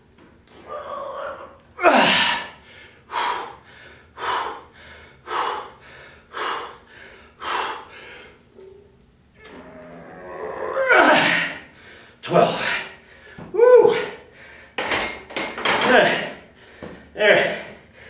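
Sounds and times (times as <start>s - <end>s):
man gasping breaths: 1.9s - 8.5s, 11.2s - 15.2s, 15.9s - 18.0s.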